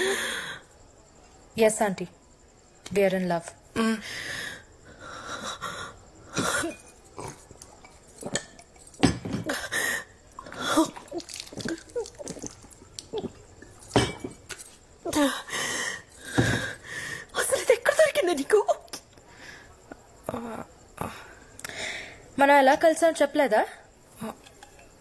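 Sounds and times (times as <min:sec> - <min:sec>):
woman gulping water: 0:06.4 - 0:14.4.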